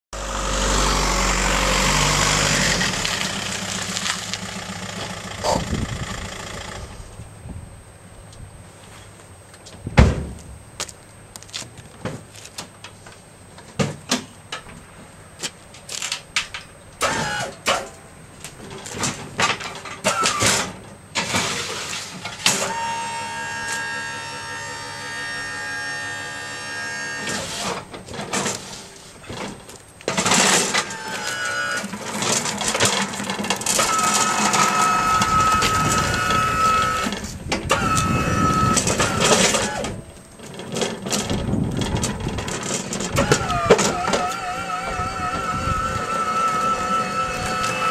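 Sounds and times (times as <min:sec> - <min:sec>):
electric lift motor whining: 0:00.2 - 0:07.3, 0:17.0 - 0:17.8, 0:21.4 - 0:28.0, 0:30.1 - 0:47.9.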